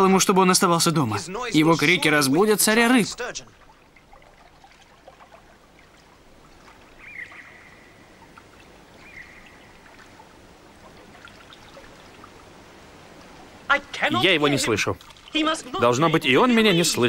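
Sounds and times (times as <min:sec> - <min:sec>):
water lapping and trickling: 0:01.4 - 0:17.0
small drips and ticks: 0:03.1 - 0:14.1, 0:14.7 - 0:15.8.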